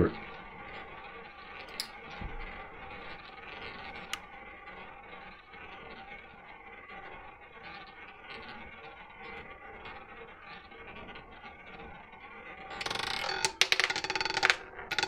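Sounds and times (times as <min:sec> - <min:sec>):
roulette ball whirring: 0:00.0 - 0:15.0
roulette ball clattering: 0:01.6 - 0:02.2, 0:12.7 - 0:15.0.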